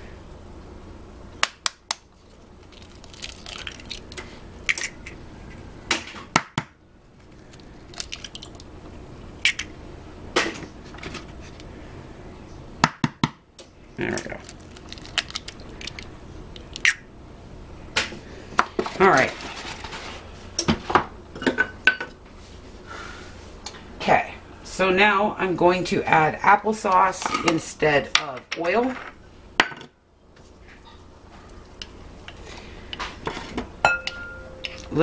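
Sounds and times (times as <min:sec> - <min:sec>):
steady low hum: 0:00.0 - 0:35.0
eggshells cracking: 0:02.6 - 0:05.1, 0:07.3 - 0:08.7, 0:14.1 - 0:17.0.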